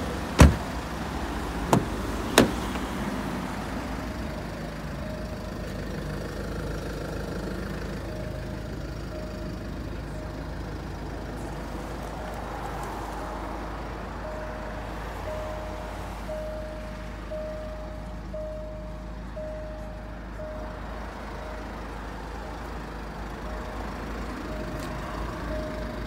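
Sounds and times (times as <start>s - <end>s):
car engine idling: 0.0s - 12.4s, 13.7s - 26.0s
warning chime beeps: 14.2s - 22.5s, 23.4s - 26.0s.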